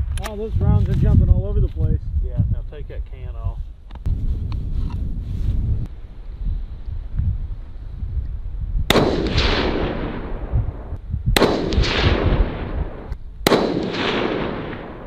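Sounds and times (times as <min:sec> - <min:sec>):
wind rumble on microphone: 0:00.0 - 0:15.0
rifle shots with rolling echo: 0:08.9 - 0:15.0.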